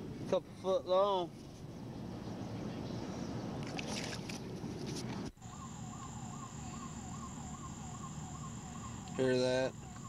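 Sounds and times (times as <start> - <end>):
siren yelping: 5.4 - 10.0.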